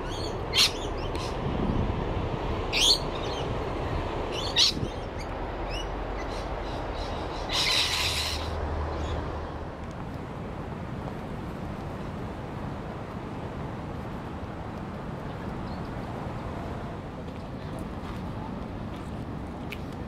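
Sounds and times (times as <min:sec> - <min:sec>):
parrots screeching: 0:07.1 - 0:08.5.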